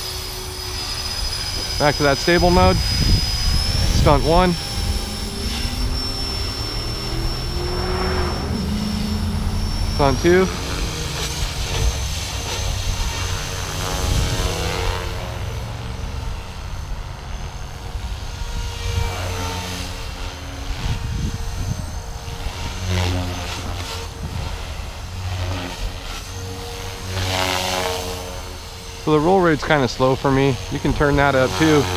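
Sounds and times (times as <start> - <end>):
motor whine: 0.0 - 31.9
rc helicopter rotor buzz: 0.0 - 31.9.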